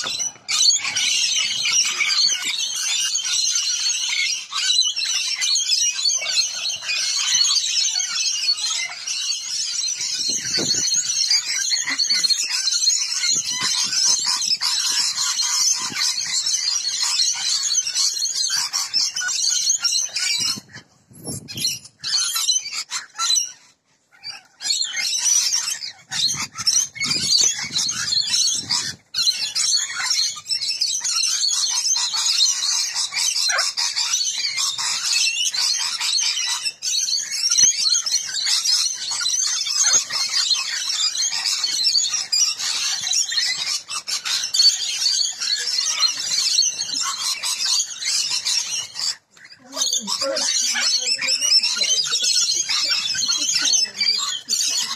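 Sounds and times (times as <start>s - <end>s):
parrots screeching and chattering: 0.0s - 54.9s.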